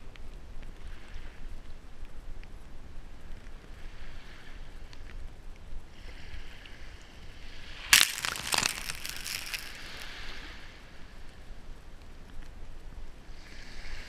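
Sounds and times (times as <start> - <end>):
foam hissing over sand and shells: 7.9 - 10.2.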